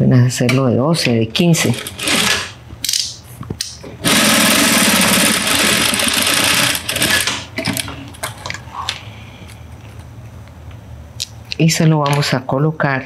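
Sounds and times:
sewing machine running: 1.7 - 2.6, 4.0 - 7.8.

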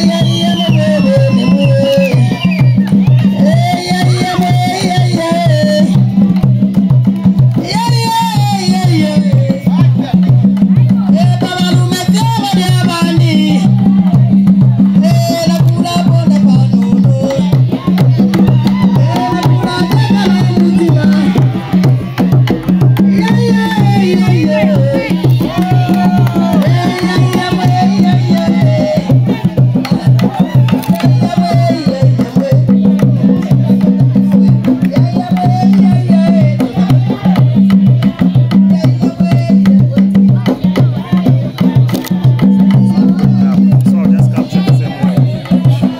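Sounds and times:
heavy drum beat: 0.0 - 45.9
party music: 0.0 - 45.9
person singing: 0.0 - 45.9.

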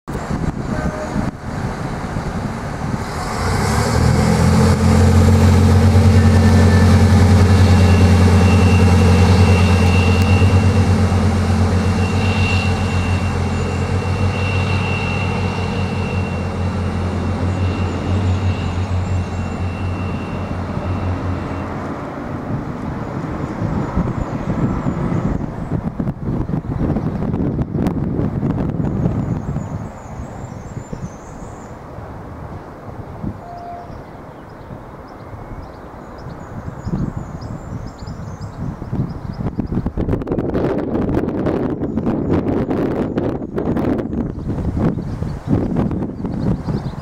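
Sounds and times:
deep diesel engine drone: 0.1 - 26.2
thin high whine: 5.1 - 24.1.

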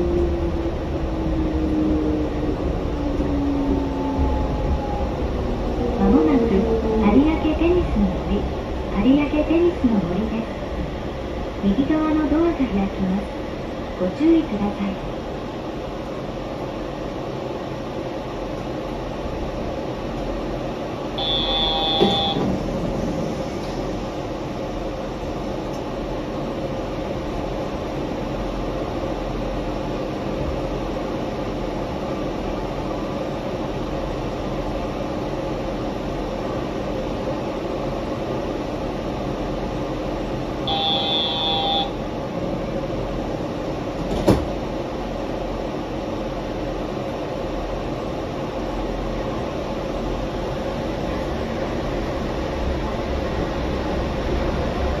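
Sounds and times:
train running hum: 0.0 - 55.0
short high beep: 21.2 - 22.4, 40.7 - 42.0.

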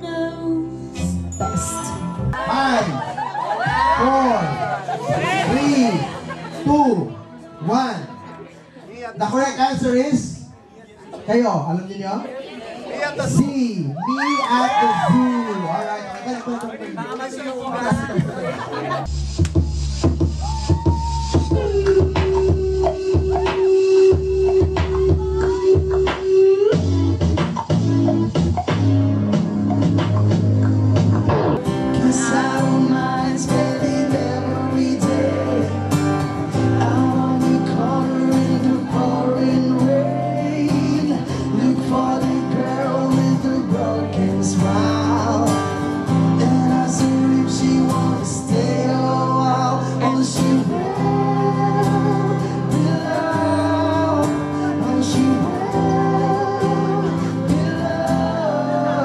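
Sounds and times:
accompanying music: 19.1 - 59.0
man singing into microphone: 31.6 - 59.0.

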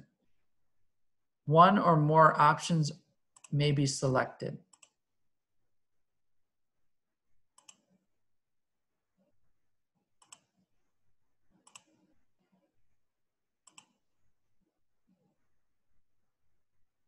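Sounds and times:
computer mouse clicks: 3.3 - 3.5, 4.7 - 5.0, 7.5 - 8.0, 10.2 - 10.6, 11.6 - 12.1, 13.6 - 14.0.

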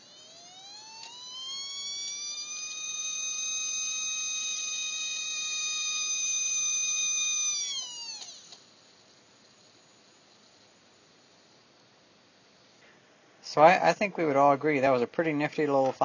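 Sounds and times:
tiny electric motor whining: 0.0 - 11.7.

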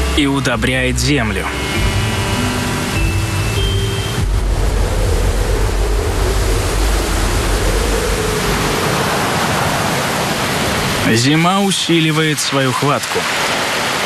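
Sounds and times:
low rumble: 0.0 - 11.0
storm wind howling: 1.4 - 12.0.

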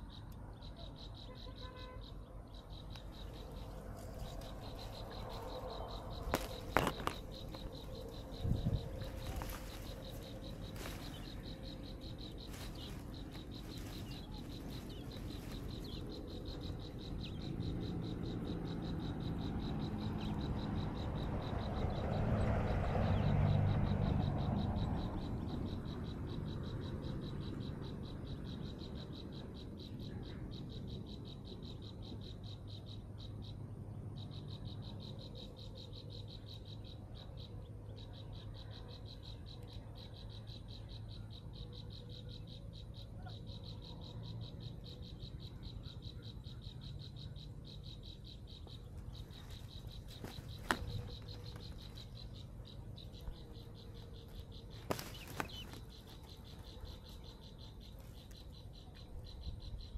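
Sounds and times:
high-pitched insect trill: 0.0 - 22.5.

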